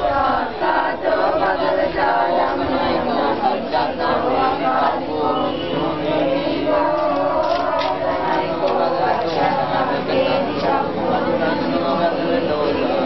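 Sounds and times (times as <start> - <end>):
group chanting in unison: 0.0 - 13.0.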